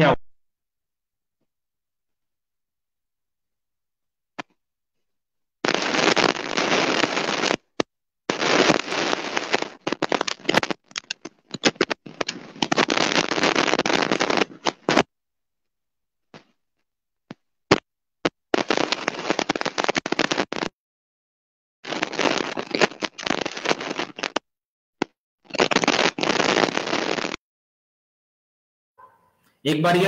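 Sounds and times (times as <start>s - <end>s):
harsh static crackle: 5.6s - 15.1s, 17.7s - 20.7s, 21.8s - 27.4s.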